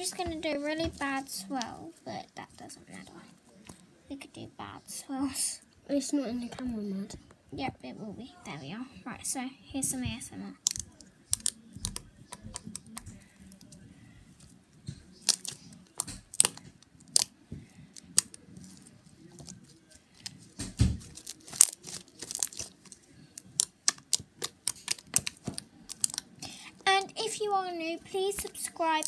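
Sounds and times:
slime sticky clicks and pops: 10.6s - 13.1s, 23.5s - 26.2s.

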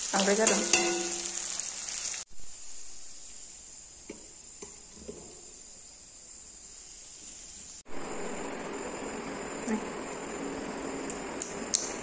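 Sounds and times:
crickets chirring: 2.4s - 11.7s.

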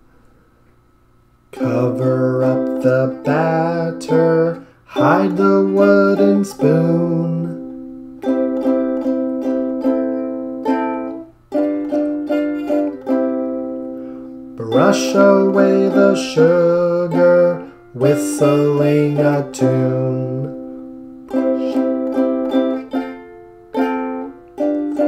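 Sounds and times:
man singing: 1.6s - 7.7s, 14.6s - 22.2s
strummed string instrument: 1.6s - 25.0s.

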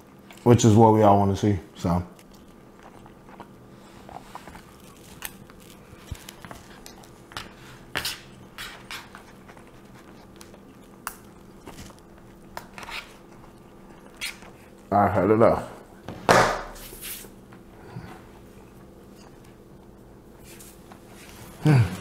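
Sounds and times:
chewing: 0.0s - 0.5s, 2.1s - 14.9s
faint steady hum: 0.0s - 22.0s.

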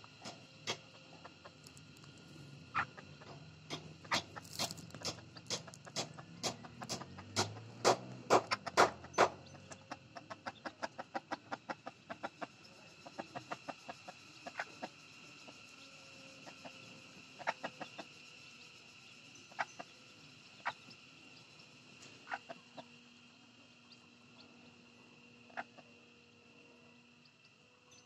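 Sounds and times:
hen clucking: 2.7s - 7.6s, 8.3s - 14.9s, 17.4s - 18.1s, 22.2s - 22.9s, 25.5s - 25.9s.

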